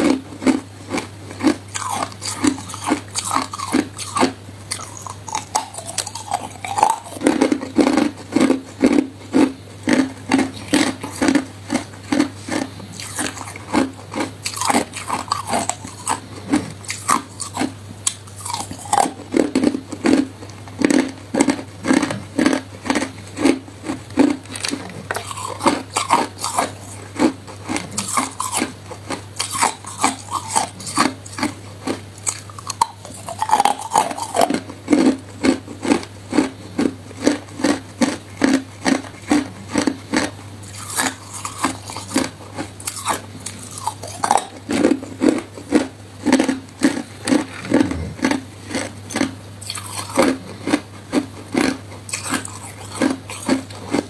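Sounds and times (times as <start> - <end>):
crushed ice being chewed: 0.0 - 54.0.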